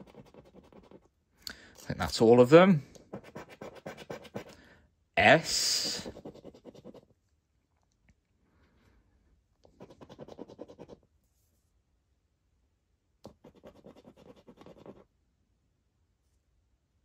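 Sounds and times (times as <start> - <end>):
coin scratching scratchcard: 0.0 - 1.0, 3.1 - 4.5, 5.6 - 7.0, 9.8 - 11.0, 13.3 - 15.0.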